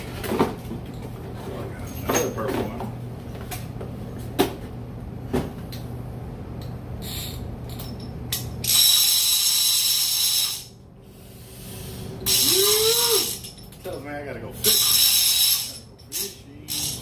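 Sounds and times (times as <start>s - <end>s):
fishing reel gears buzzing: 8.6s - 10.7s, 12.2s - 13.5s, 14.7s - 17.0s.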